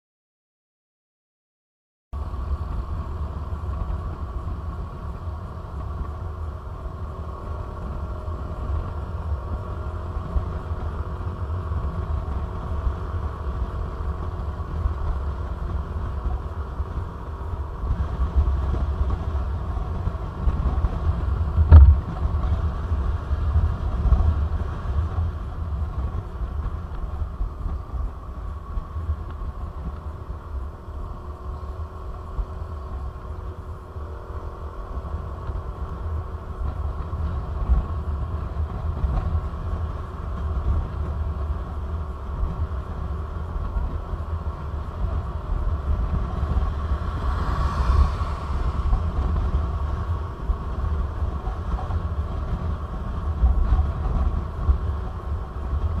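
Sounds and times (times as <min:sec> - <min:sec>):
motorcycle engine running: 0:02.2 - 0:56.0
wind rumble on microphone: 0:02.2 - 0:56.0.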